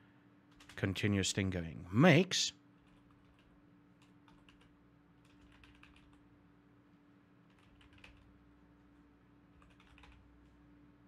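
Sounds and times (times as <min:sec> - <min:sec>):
steady low hum: 0:00.0 - 0:11.0
typing on computer keyboard: 0:00.5 - 0:00.8, 0:02.8 - 0:06.2, 0:07.5 - 0:08.3, 0:09.5 - 0:10.6.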